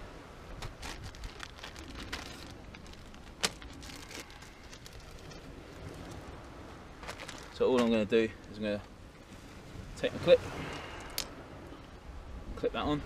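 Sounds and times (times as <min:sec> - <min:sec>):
plastic packet crinkling: 0:00.6 - 0:05.4, 0:07.1 - 0:07.6.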